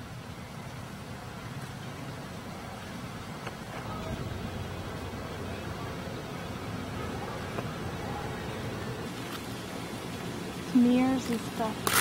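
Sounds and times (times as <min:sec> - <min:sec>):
low outdoor background rumble: 0:00.0 - 0:12.0.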